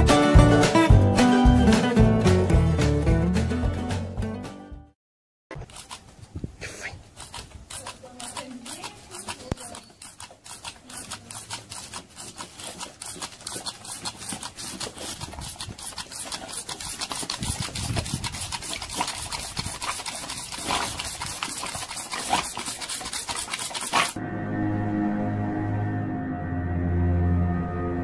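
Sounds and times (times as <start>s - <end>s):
water pistol squirting: 5.5s - 24.2s.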